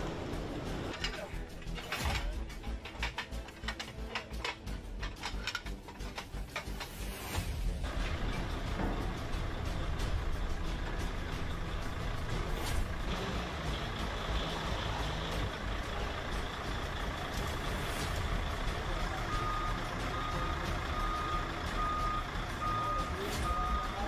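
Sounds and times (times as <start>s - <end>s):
forklift engine running: 0.0s - 24.0s
reversing alarm beeps: 19.2s - 24.0s.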